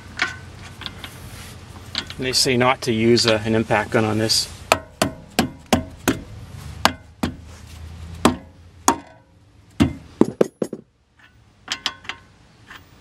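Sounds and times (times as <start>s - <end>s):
metallic knocks and clinks: 9.9s - 12.3s.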